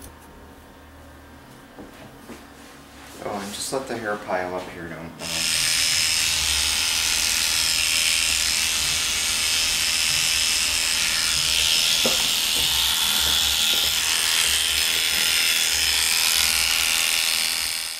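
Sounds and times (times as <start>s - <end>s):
electric hair clippers buzzing: 5.2s - 17.9s.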